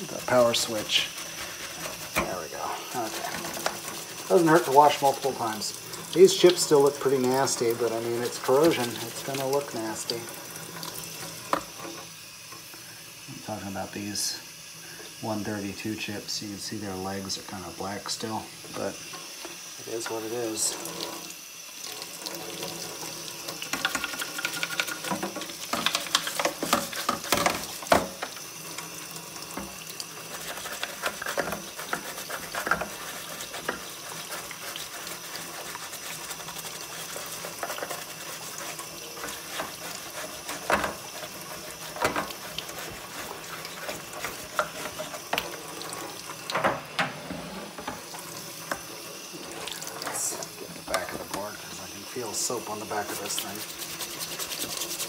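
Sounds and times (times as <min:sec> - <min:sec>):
toothbrush scrubbing: 0:00.0 - 0:10.2, 0:22.7 - 0:46.4, 0:49.2 - 0:55.0
tap water running into sink: 0:00.0 - 0:55.0.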